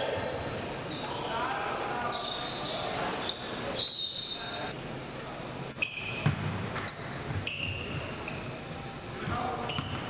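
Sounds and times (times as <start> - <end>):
sneaker squeaks: 0.0 - 1.4, 2.0 - 4.7, 5.7 - 10.0.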